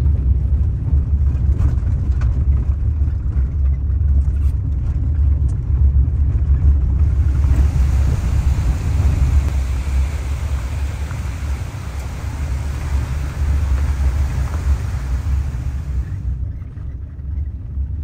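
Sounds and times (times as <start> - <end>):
engine and tyres rumbling: 0.0 - 18.0
even hiss: 7.0 - 16.4.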